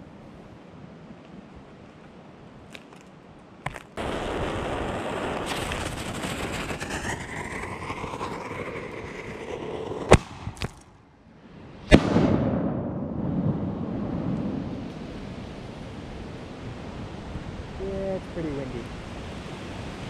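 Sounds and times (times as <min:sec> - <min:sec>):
rumbling echo: 0:04.0 - 0:11.0, 0:11.9 - 0:15.4.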